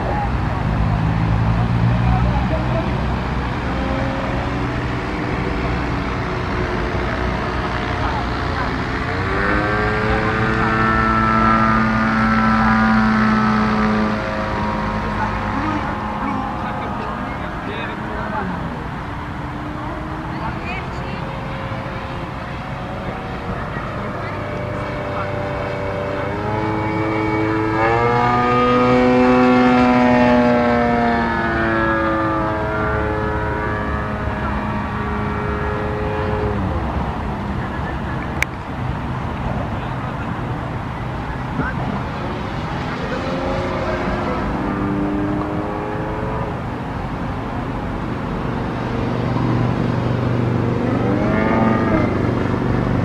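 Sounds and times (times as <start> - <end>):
model plane engine at high revs: 2.1 - 17.0, 19.7 - 38.5.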